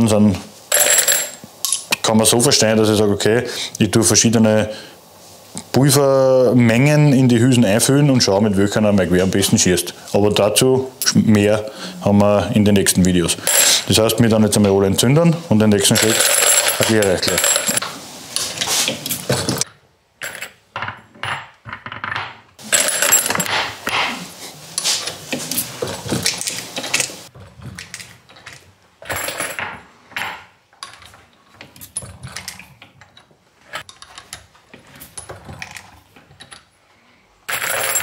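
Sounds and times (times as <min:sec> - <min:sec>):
brass cases clinking: 0:00.7 - 0:01.9, 0:13.4 - 0:13.9, 0:15.9 - 0:17.8, 0:22.6 - 0:23.6, 0:37.5 - 0:38.0.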